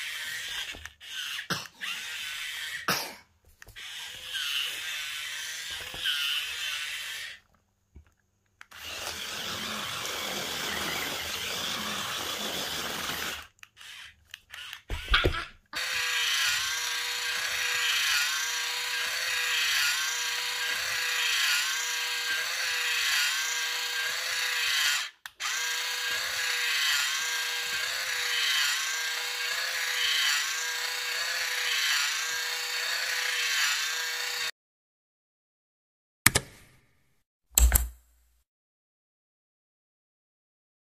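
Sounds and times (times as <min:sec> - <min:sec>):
toy car motors whining: 0:00.0 - 0:02.9, 0:03.6 - 0:07.5, 0:08.6 - 0:34.5.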